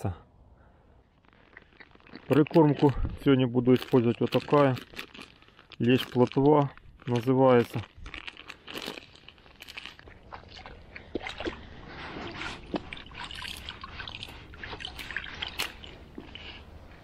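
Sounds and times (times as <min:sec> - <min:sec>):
water splashing and dripping: 0:10.0 - 0:16.5.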